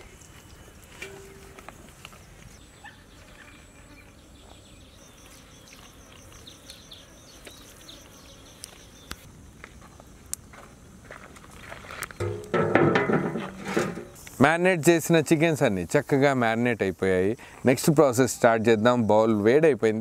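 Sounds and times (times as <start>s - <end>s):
high-pitched insect chirp: 0.0s - 10.0s.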